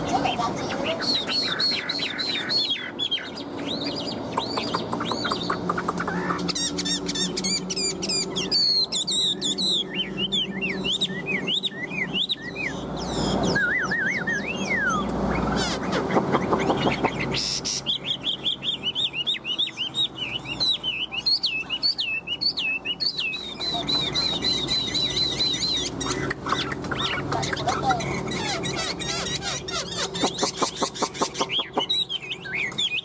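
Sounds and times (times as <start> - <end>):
songbird whistling song: 0.0 - 33.0.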